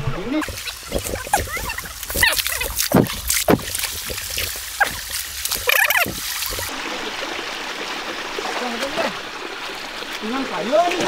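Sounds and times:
leaves and twigs rustling: 0.4s - 6.8s.

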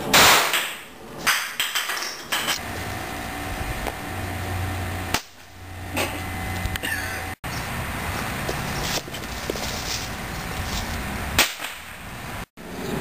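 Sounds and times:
sharp knocks and clatters: 0.2s - 2.6s
low hum: 2.6s - 13.0s.

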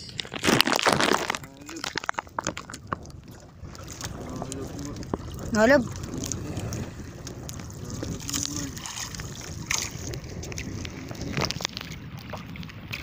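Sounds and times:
waves washing around boat: 0.0s - 13.0s
wind on microphone: 0.0s - 13.0s.

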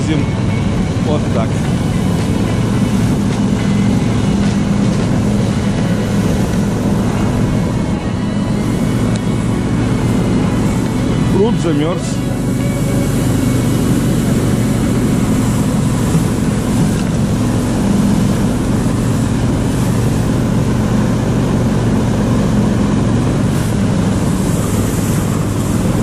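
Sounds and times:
snow tow engine running: 0.0s - 26.0s.

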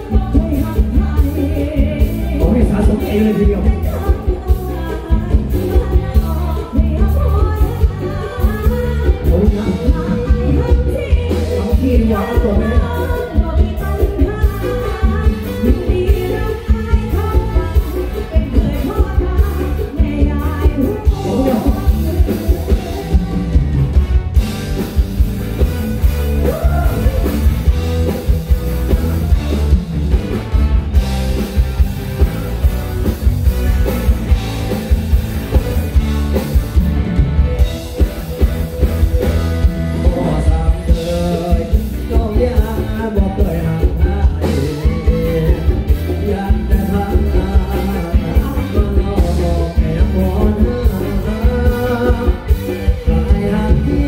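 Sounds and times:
woman singing: 0.0s - 24.0s, 39.1s - 54.0s
rock band playing: 0.0s - 54.0s.

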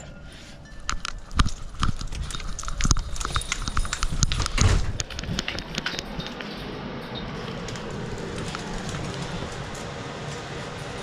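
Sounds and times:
dog claws clattering on hard floor: 0.9s - 6.4s.

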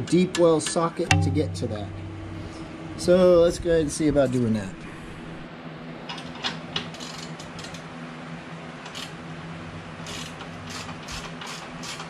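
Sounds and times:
steady low hum: 1.1s - 5.8s.

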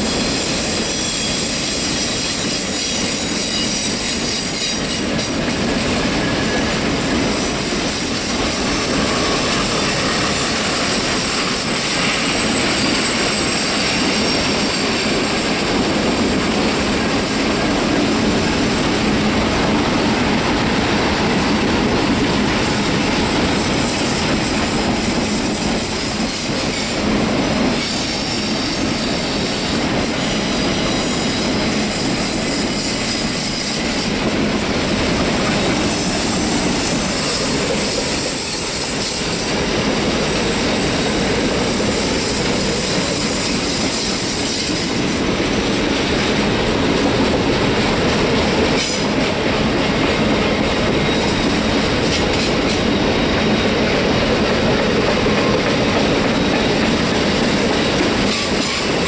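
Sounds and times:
high wheel squeal: 0.0s - 19.3s, 35.4s - 46.2s
train wheels rumbling on rails: 0.0s - 59.0s.

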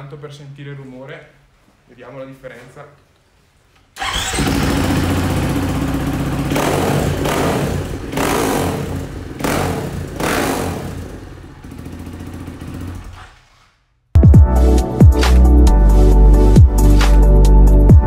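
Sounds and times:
motorcycle engine revving: 4.0s - 13.6s.

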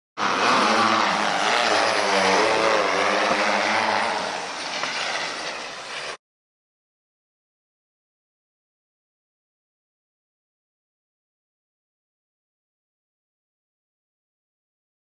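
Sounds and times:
motor running with wavering pitch: 0.2s - 6.2s.

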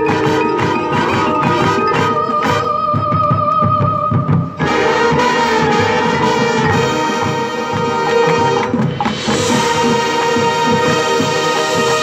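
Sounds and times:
marching band playing: 0.0s - 12.0s.

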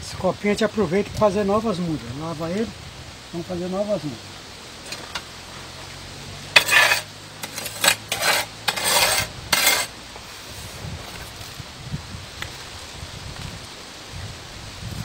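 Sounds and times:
soil scraped with trowel: 6.5s - 11.6s.

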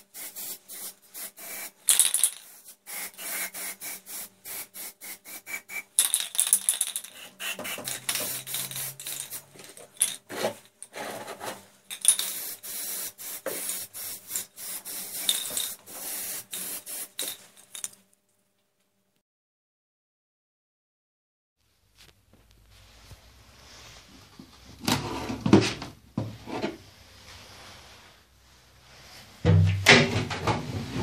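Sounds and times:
spray can hissing bursts: 0.0s - 10.2s, 11.9s - 17.9s.

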